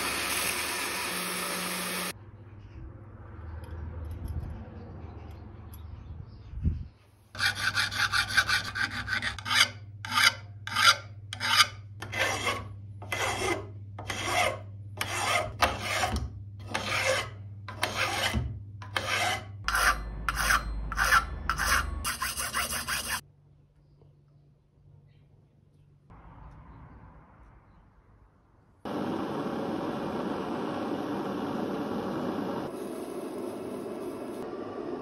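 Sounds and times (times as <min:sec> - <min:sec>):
file scraping on brass: 0:07.4 - 0:23.2.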